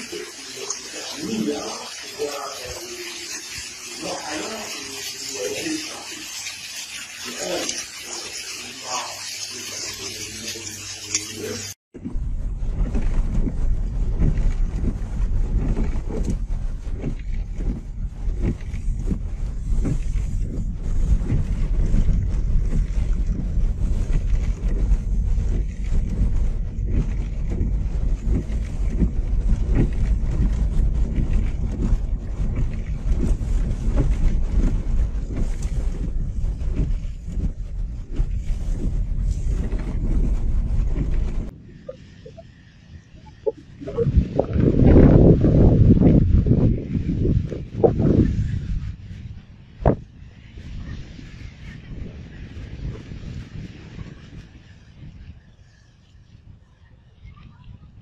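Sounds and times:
car cabin rumble: 12.0s - 48.4s.

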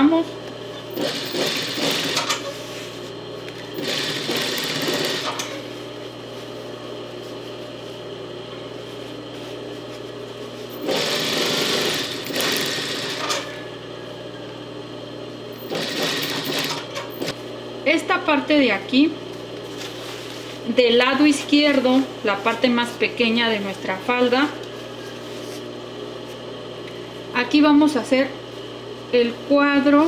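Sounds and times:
sewing machine stitching: 0.9s - 2.4s, 3.8s - 5.6s, 10.8s - 13.5s, 15.6s - 17.3s.

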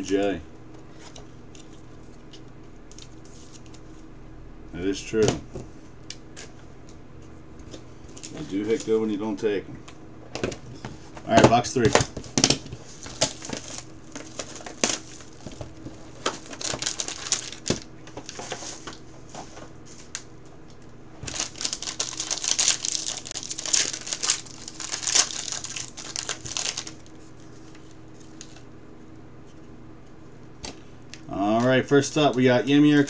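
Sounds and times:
foil wrapper crinkling: 12.4s - 19.0s, 21.2s - 28.6s.

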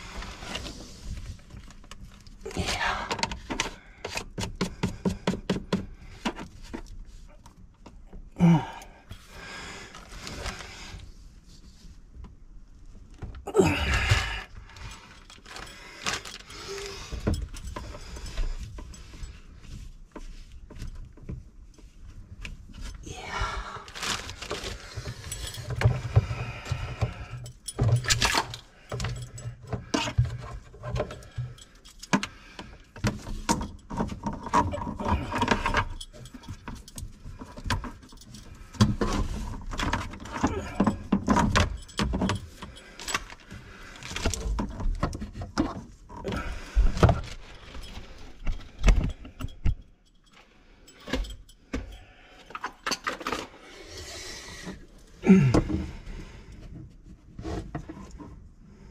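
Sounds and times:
metallic clinks and rattles: 14.0s - 23.1s, 23.8s - 55.3s.

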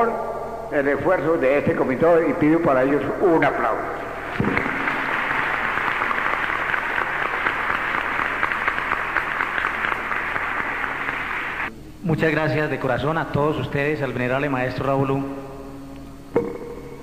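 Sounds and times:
audience applauding: 4.0s - 11.7s.

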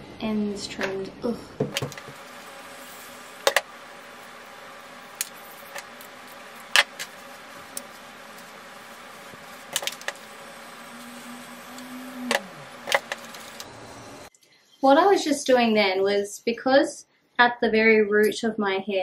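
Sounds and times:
hair straightener humming: 1.6s - 14.3s.

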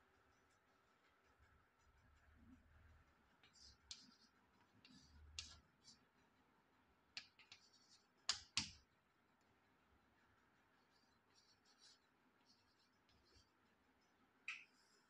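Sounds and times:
chalk writing on blackboard: 0.2s - 6.2s, 7.2s - 8.8s, 10.8s - 13.6s
chalk tapping: 0.3s - 6.2s, 7.1s - 8.9s, 10.8s - 13.6s.

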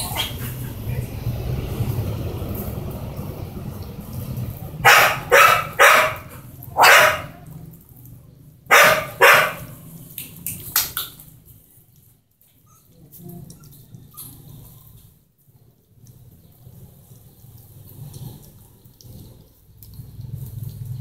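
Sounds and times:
dog barking: 4.8s - 7.5s, 8.7s - 9.8s.

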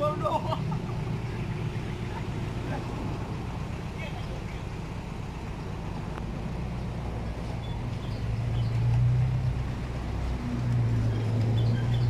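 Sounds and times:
tractor diesel engine humming: 0.0s - 12.0s.

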